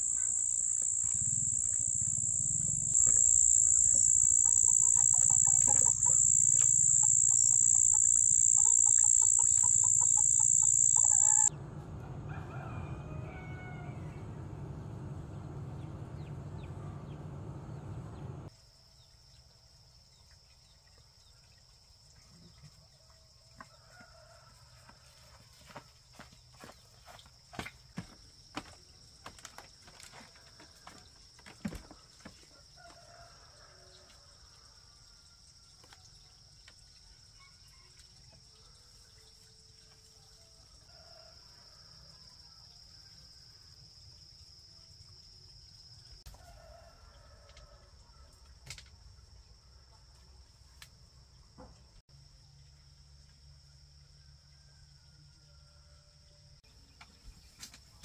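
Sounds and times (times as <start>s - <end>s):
distant chicken calls: 0.0s - 11.5s
insects droning: 0.0s - 11.5s, 25.7s - 58.0s.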